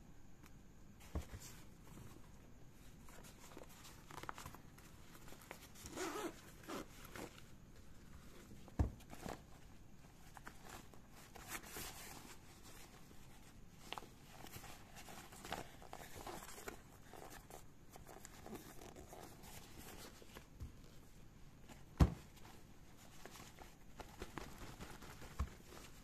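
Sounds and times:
nylon fabric rustling: 1.1s - 26.0s
zipper clicks: 5.8s - 6.9s.

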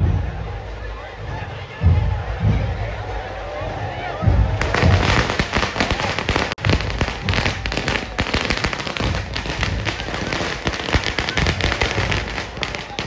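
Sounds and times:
firecrackers going off: 4.6s - 13.0s.

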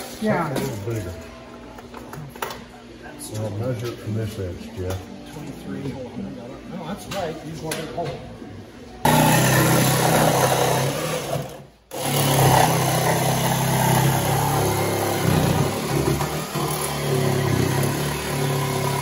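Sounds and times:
jigsaw cutting wood: 9.1s - 19.0s.

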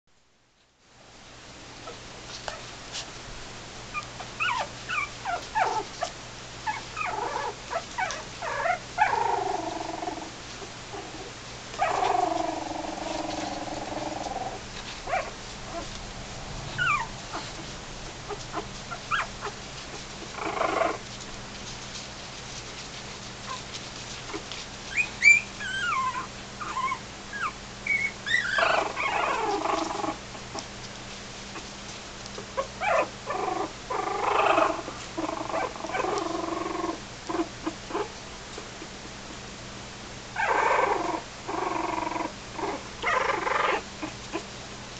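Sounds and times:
puppies whining cries: 3.9s - 15.9s, 16.8s - 17.6s, 18.3s - 19.6s, 24.3s - 30.2s, 32.6s - 38.1s, 40.4s - 44.4s
puppies whimpering and squeaking: 3.9s - 16.0s, 16.8s - 21.1s, 23.4s - 30.6s, 32.4s - 38.1s, 40.4s - 44.5s.

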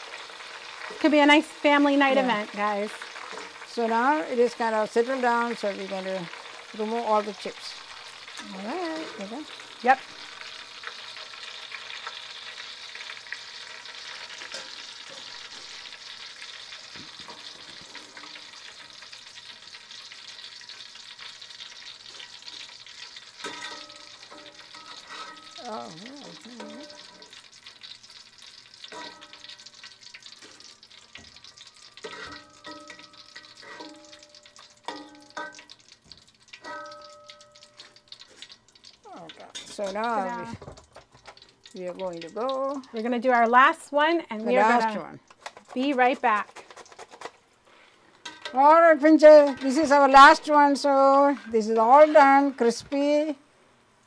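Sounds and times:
oil sizzling: 0.0s - 54.0s
metal skimmer scraping a pot: 22.1s - 27.4s, 30.2s - 35.9s, 44.7s - 47.4s, 48.2s - 52.7s.

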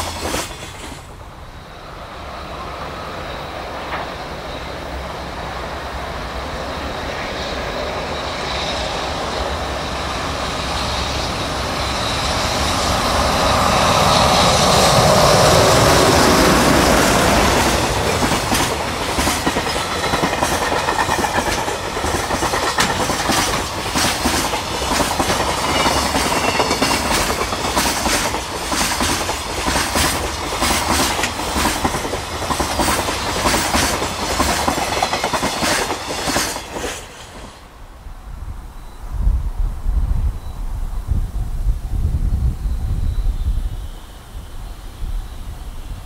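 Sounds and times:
train wheels clickety-clack: 0.0s - 1.1s, 3.8s - 4.4s, 10.5s - 37.6s
electric locomotive whine: 0.0s - 46.0s.

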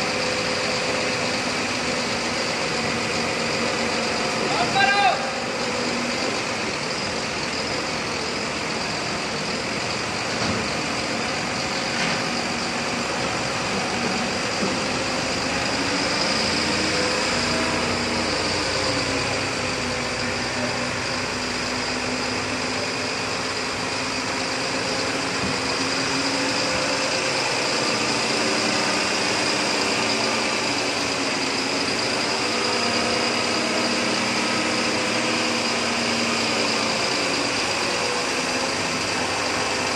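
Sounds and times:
hydraulic high whine: 0.0s - 39.9s
truck engine running: 0.0s - 39.9s.

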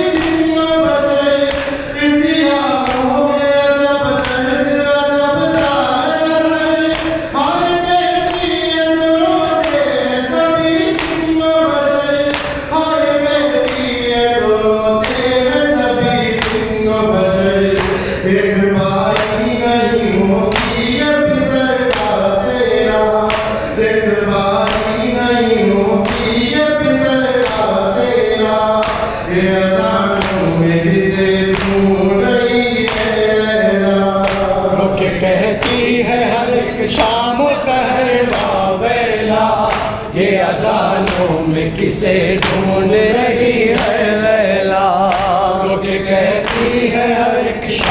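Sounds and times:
men chanting: 0.0s - 47.9s
sharp rhythmic strikes: 0.0s - 47.9s.

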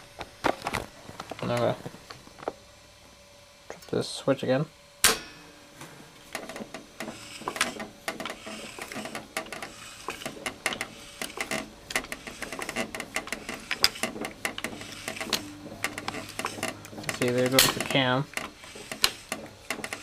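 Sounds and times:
jukebox mechanism clicking: 6.4s - 20.0s.

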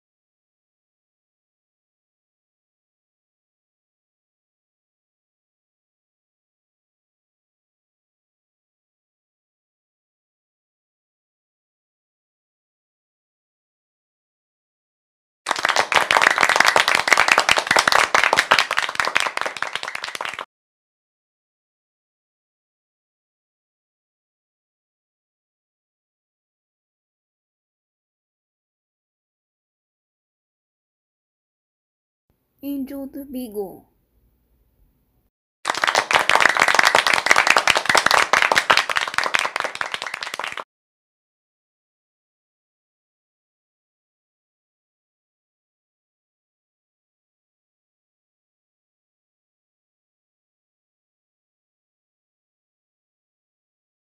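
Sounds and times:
crowd applauding: 15.5s - 20.5s, 35.7s - 40.6s.

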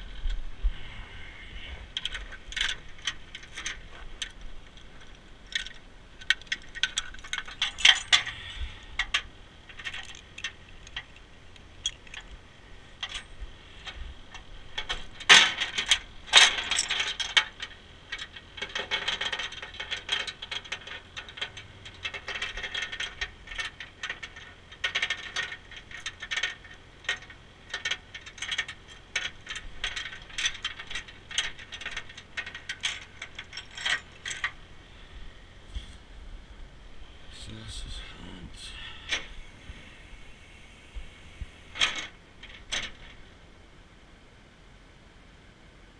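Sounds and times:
metal chains clinking and rattling: 2.0s - 12.4s, 13.0s - 34.7s, 41.7s - 43.3s.

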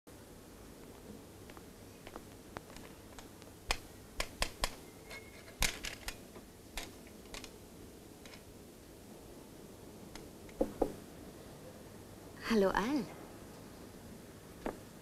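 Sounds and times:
faint steady hiss: 0.1s - 15.0s
sharp irregular clicks and knocks: 1.5s - 7.6s, 8.2s - 8.5s.

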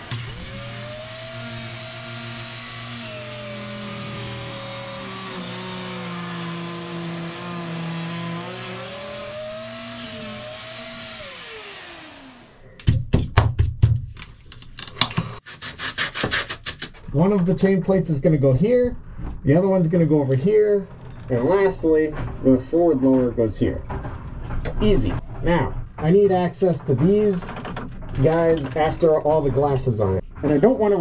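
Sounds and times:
electric grinder grinding fiberglass: 0.0s - 12.7s
sharp scraping strokes: 15.3s - 17.0s.

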